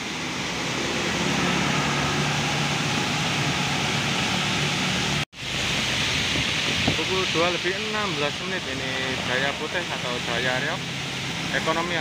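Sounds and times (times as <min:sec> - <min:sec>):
bus diesel engine droning: 0:00.0 - 0:05.3
heavy rain on wet road: 0:00.0 - 0:12.0.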